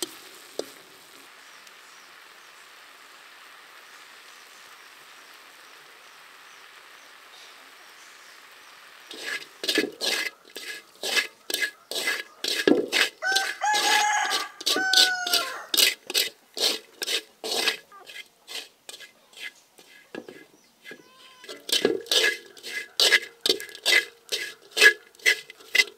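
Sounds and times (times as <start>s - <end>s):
faint steady hiss: 0.0s - 25.9s
chickens clucking: 10.0s - 15.8s, 19.2s - 25.9s
rooster crowing: 13.2s - 15.8s.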